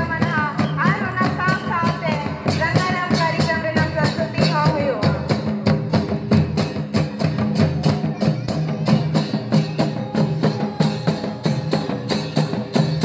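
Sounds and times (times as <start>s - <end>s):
hand drums beating: 0.0s - 13.0s
small hand cymbals: 6.6s - 13.0s.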